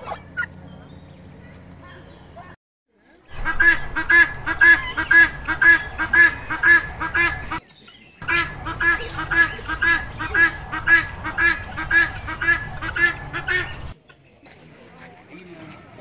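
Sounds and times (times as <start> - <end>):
guineafowl cackling calls: 0.0 - 0.6, 3.3 - 14.0.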